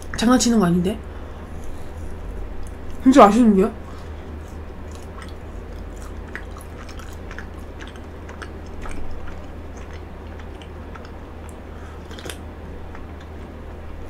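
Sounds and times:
crunchy chewing: 1.2s - 3.0s, 3.8s - 14.0s.

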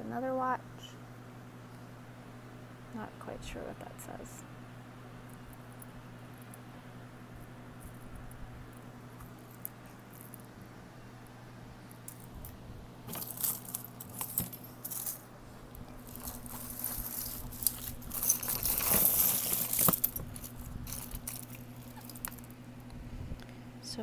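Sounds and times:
jewelry jangling and clinking: 13.1s - 15.3s, 16.0s - 22.5s.

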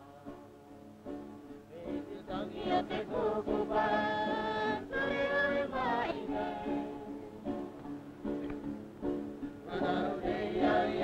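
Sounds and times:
group singing traditional song: 1.7s - 7.6s, 9.6s - 11.0s.

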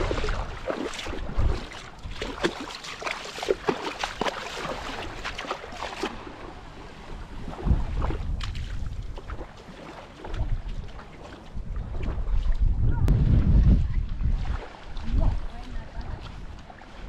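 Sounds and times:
wind buffeting microphone: 0.0s - 2.5s, 7.0s - 9.6s, 10.2s - 16.8s
wavelets lapping on shore: 0.0s - 17.0s.

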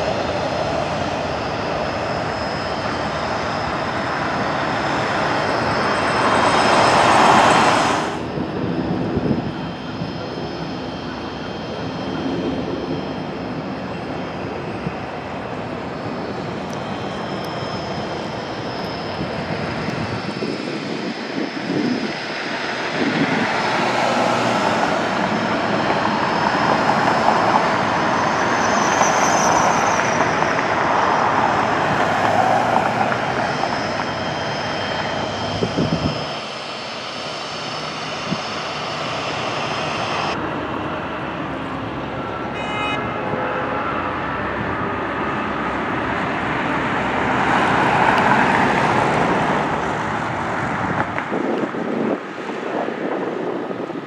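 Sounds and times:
propeller aircraft engine: 0.0s - 54.0s.

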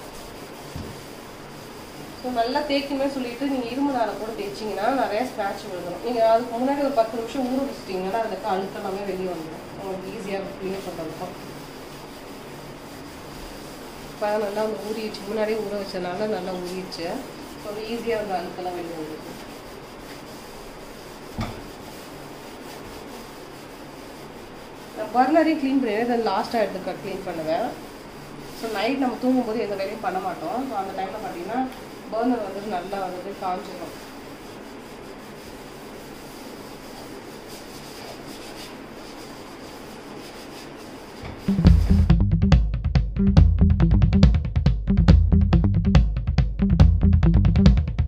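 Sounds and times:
scrub pad rubbing steel: 0.0s - 42.2s
knock: 21.4s - 21.7s
loud drum-led music: 41.5s - 48.0s.

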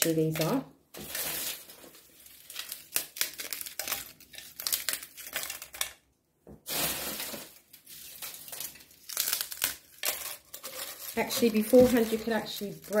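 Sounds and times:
snail shells crunching and cracking: 2.0s - 6.1s, 7.5s - 13.0s.

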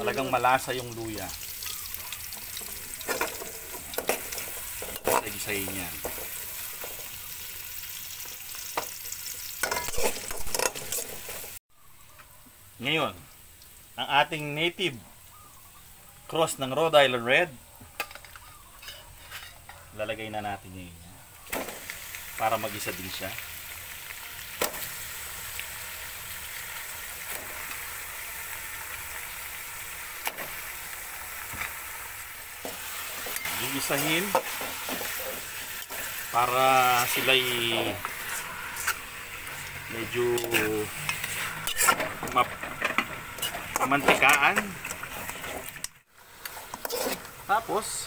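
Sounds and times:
food sizzling in hot oil: 0.0s - 11.6s, 12.8s - 15.9s, 21.3s - 48.0s
metal spoon stirring and scraping: 9.6s - 11.6s, 18.0s - 19.8s, 32.6s - 36.3s, 36.9s - 47.5s.

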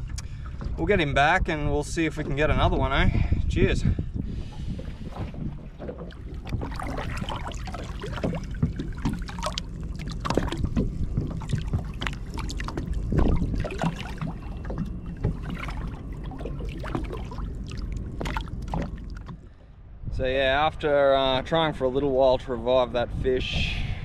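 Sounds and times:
water splashing and sloshing: 0.0s - 24.0s
wind rumble on microphone: 0.0s - 24.0s.

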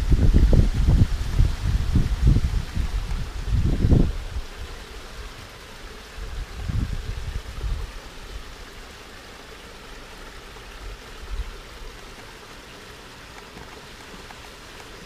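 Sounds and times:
running water hissing: 0.0s - 15.0s.

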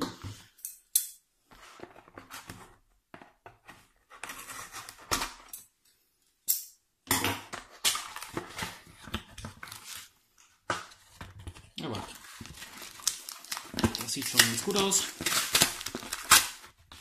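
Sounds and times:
cardboard scraping and rustling: 3.4s - 5.3s
scissors slitting packing tape: 13.0s - 16.7s.

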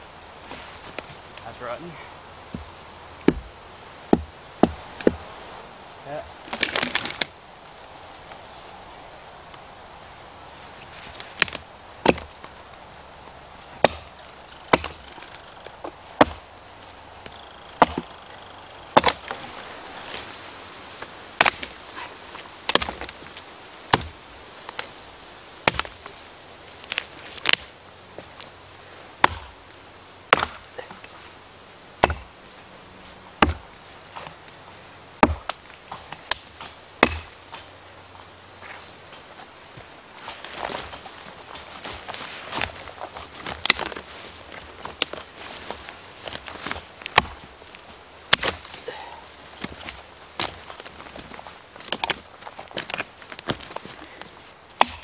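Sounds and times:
axe chopping wood: 2.5s - 3.5s, 4.1s - 5.3s, 11.4s - 12.4s, 13.8s - 16.5s, 17.2s - 19.6s, 21.4s - 21.8s, 22.7s - 23.1s, 23.9s - 24.8s, 25.6s - 26.0s, 29.2s - 29.6s, 30.3s - 30.7s, 32.0s - 32.4s, 33.4s - 34.3s, 35.2s - 37.6s, 43.4s - 44.0s, 46.4s - 47.4s, 48.3s - 48.8s, 54.7s - 55.0s.

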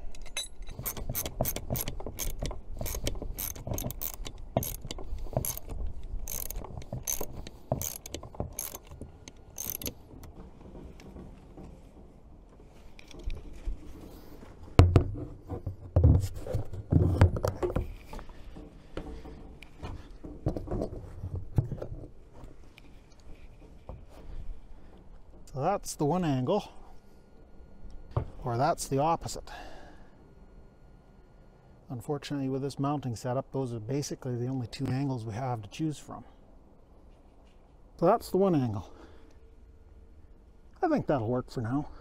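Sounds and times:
ratchet wrench clicking: 0.1s - 10.0s.

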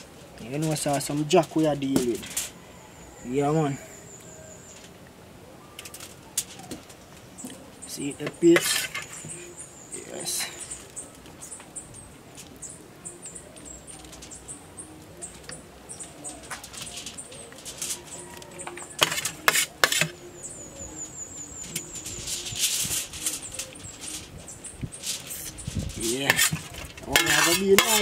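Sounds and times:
utensils scraping and tapping: 0.5s - 2.6s, 7.4s - 9.6s, 16.2s - 20.2s, 21.6s - 28.0s
foil crinkling: 16.1s - 20.2s, 21.6s - 28.0s.

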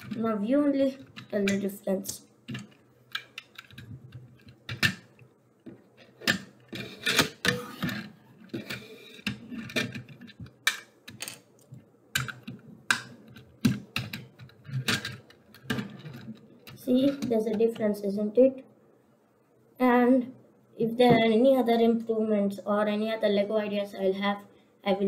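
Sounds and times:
plastic bricks clicking: 0.9s - 5.2s, 6.0s - 17.3s.

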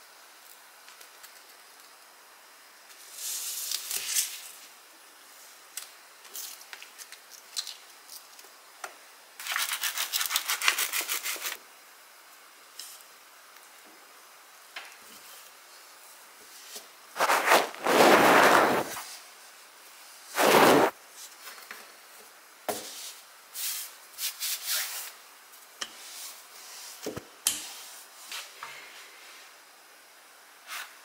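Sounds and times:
flour sprinkling patter: 15.1s - 19.2s
hands rustling apple slices: 17.2s - 19.0s.

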